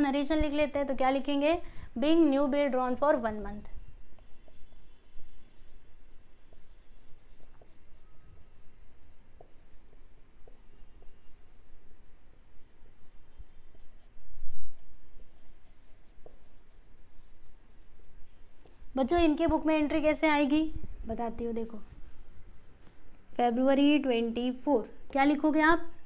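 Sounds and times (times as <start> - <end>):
pen scratching on paper: 3.2 - 20.2.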